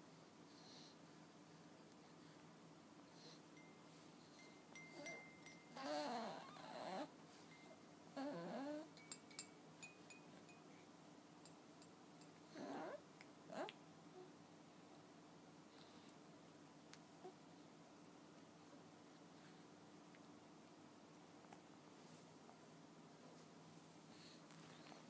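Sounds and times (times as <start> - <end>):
baby toy tinkling chimes: 3.6 - 10.8
baby cooing: 5.8 - 7.1, 8.2 - 8.9.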